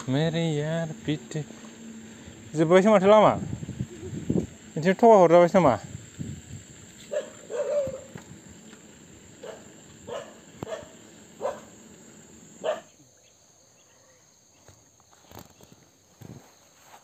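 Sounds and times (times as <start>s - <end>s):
dog barking: 7.1s - 8.1s, 9.4s - 11.8s, 12.6s - 13.0s.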